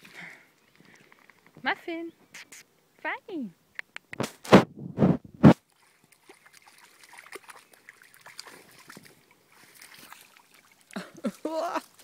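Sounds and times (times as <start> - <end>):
dog splashing in puddle: 5.5 - 12.0.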